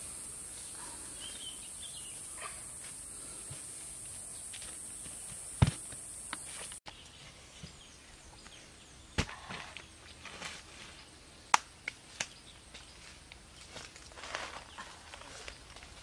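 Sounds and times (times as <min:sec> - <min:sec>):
steady high hiss: 0:00.0 - 0:06.8
earth lump thudding on ground: 0:05.6 - 0:06.0
footsteps in dry leaves: 0:12.7 - 0:16.0.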